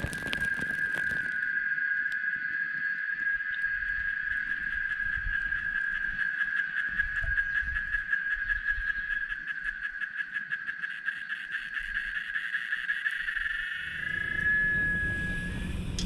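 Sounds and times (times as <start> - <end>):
pulsing trill of night animal: 0.0 - 16.0
low rumble: 13.9 - 16.0.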